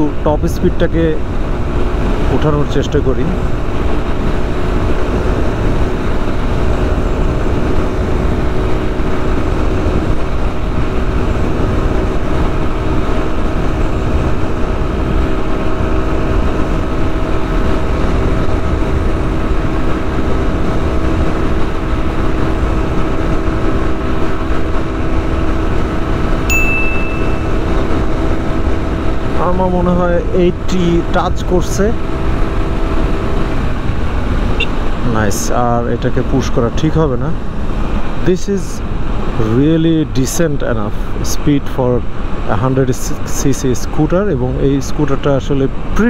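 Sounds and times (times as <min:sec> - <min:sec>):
short high beep: 0:26.5 - 0:27.8.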